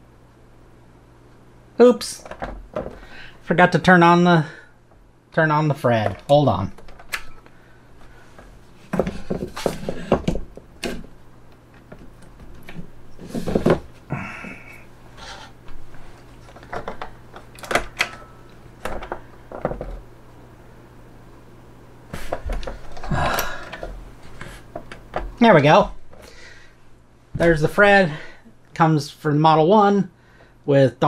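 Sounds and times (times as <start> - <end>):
hands handling computer gear: 15.7 - 20.0.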